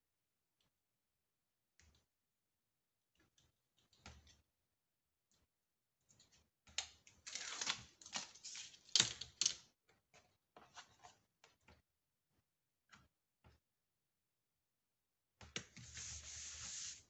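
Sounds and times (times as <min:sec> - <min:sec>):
paper rustling and crinkling: 0:07.2 - 0:09.6.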